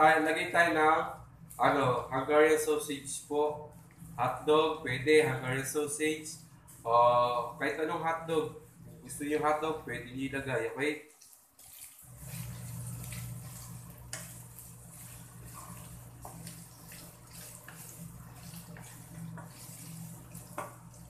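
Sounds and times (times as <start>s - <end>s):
steady low hum: 0.0s - 10.8s, 12.1s - 21.0s
meat sizzling in a frying pan: 12.0s - 21.0s.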